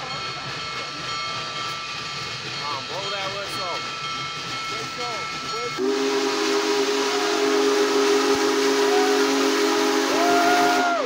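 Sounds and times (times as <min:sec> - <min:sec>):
steam locomotive whistle: 0:05.8 - 0:11.0.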